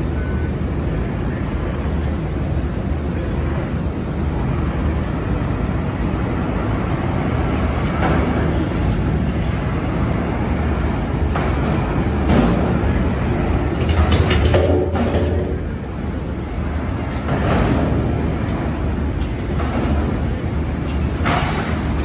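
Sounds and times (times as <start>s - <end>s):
metal clanks and bangs: 13.7s - 15.8s.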